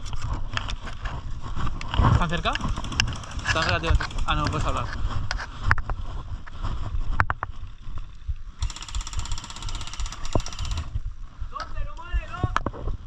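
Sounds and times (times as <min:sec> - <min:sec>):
wind rumbling on microphone: 0:00.0 - 0:13.0
rapid even ticking: 0:02.2 - 0:05.0, 0:08.6 - 0:11.0
sharp clicks: 0:02.4 - 0:04.8, 0:08.6 - 0:11.0.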